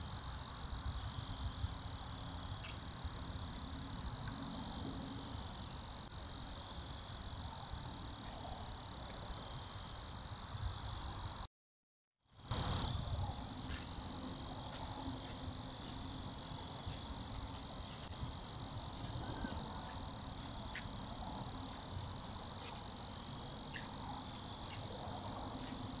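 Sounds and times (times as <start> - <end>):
crickets chirping at night: 0.0 - 11.5, 12.3 - 26.0
sharp high ticks: 2.6 - 2.9, 12.5 - 26.0
background hiss: 12.5 - 26.0.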